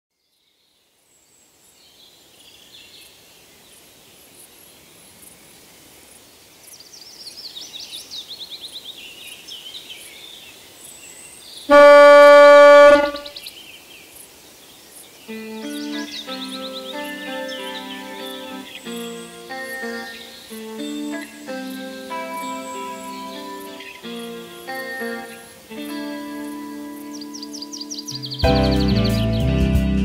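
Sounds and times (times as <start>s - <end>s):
birds chirping: 6.5s - 29.6s
car horn honk: 11.7s - 13.4s.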